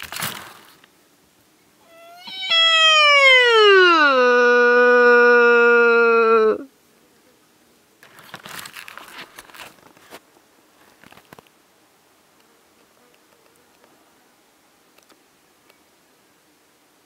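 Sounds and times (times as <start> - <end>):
rustling in dry leaf litter: 0.0 - 0.8, 8.0 - 11.4
long pitched call: 1.8 - 6.7.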